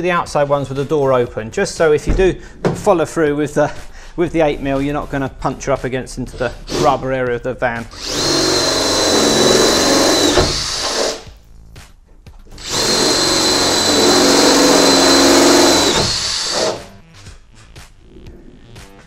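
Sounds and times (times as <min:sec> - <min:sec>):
cordless drill drilling metal: 0:07.9 - 0:11.3, 0:12.5 - 0:17.0.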